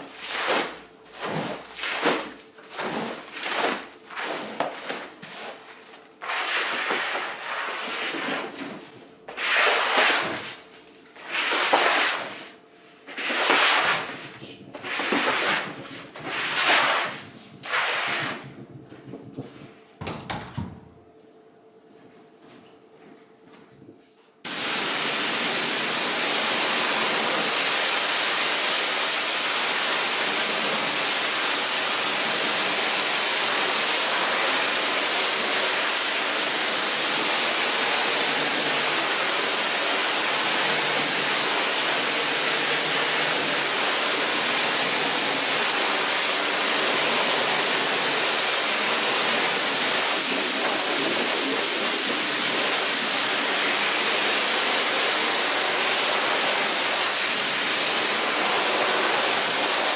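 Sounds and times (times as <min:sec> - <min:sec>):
water jet spraying onto carpet: 0:00.1 - 0:05.6, 0:09.3 - 0:10.5, 0:11.2 - 0:12.4, 0:24.5 - 0:59.9.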